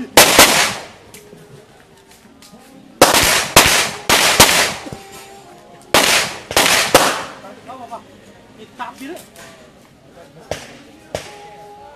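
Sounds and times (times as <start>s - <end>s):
pistol shots with echo: 0.1s - 1.0s, 3.0s - 4.9s, 5.9s - 7.4s.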